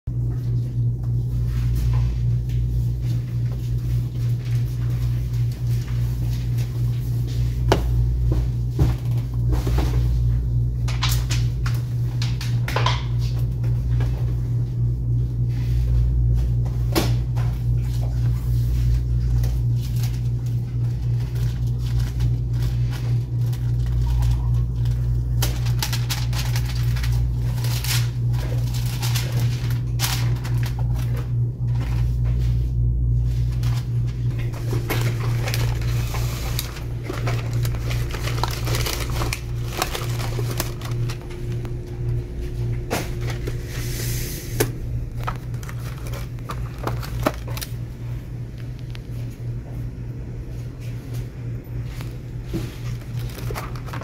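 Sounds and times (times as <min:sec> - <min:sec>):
steady low hum: 0:00.1 - 0:54.0
paper rustling: 0:18.8 - 0:32.2, 0:33.4 - 0:41.7, 0:45.1 - 0:47.9, 0:51.8 - 0:54.0.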